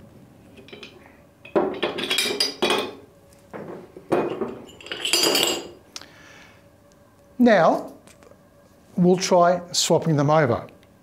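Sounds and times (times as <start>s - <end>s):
metal couplings clinking and scraping: 0.5s - 5.8s.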